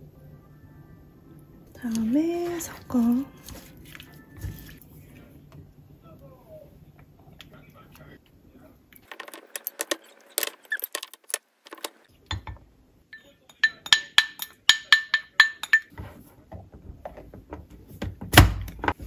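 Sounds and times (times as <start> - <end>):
utensil clinking against bowl: 13.2 - 15.9.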